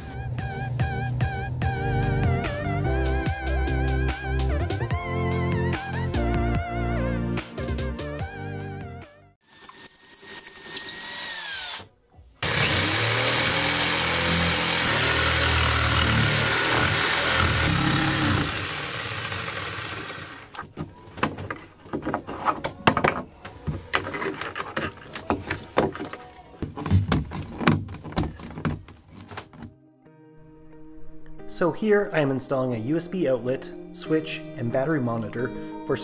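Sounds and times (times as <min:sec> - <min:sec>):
power tool running: 0:09.4 - 0:20.6.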